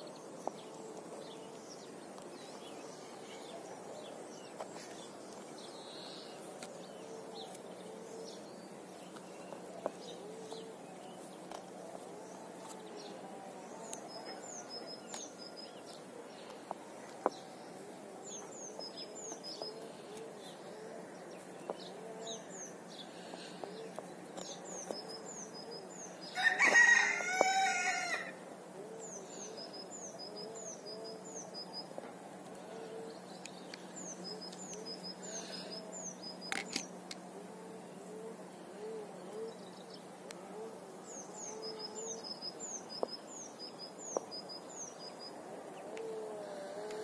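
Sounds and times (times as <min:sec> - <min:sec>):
small birds chirping: 0:00.0 - 0:47.0
steady low hum: 0:00.0 - 0:47.0
rooster crowing: 0:26.3 - 0:28.4.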